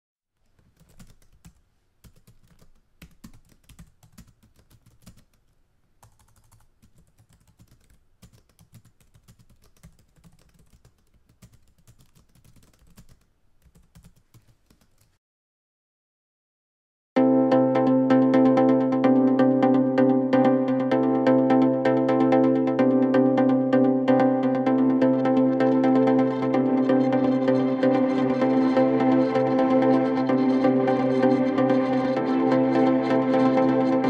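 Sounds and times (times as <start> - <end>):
keyboard typing: 0.4 - 15.1.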